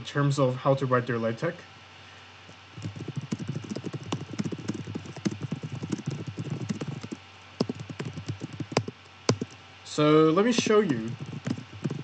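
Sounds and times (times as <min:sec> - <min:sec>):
typing on a computer keyboard: 0:02.8 - 0:09.6, 0:10.5 - 0:12.0.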